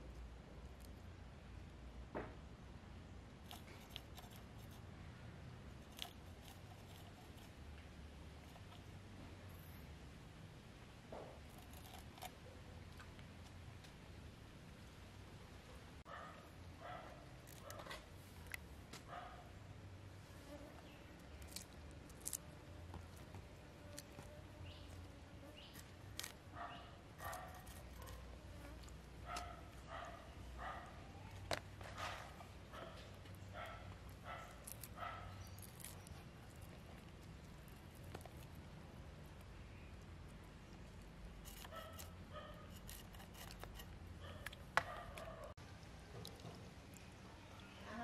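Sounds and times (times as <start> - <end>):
knife scraping fish: 41.4 - 44.0.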